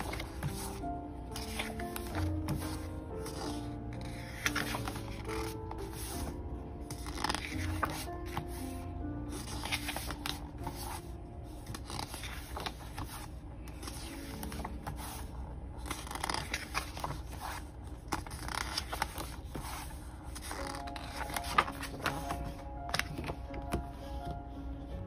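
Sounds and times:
paper pages turning: 0.0s - 24.0s
hands sliding over paper: 1.4s - 6.2s.

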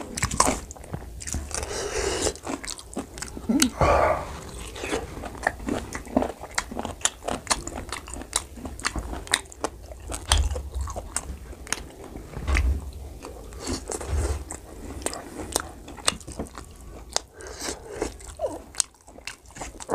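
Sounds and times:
person chewing: 0.0s - 12.3s, 12.9s - 19.9s
dull low thumps: 3.4s - 5.8s.

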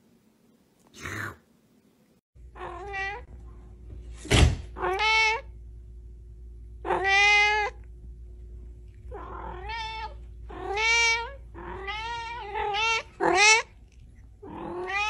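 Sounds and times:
cat meowing: 2.6s - 3.3s, 6.8s - 7.8s, 9.1s - 13.7s, 14.4s - 15.0s.

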